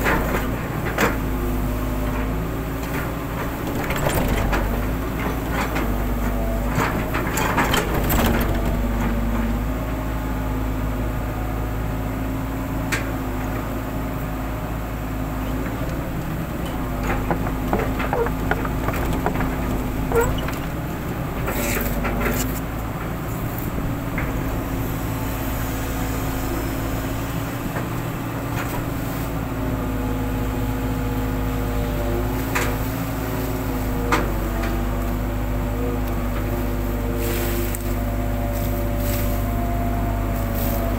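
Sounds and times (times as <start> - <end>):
excavator diesel engine and hydraulics: 0.0 - 40.9
bucket knocking and scraping soil: 16.5 - 20.8.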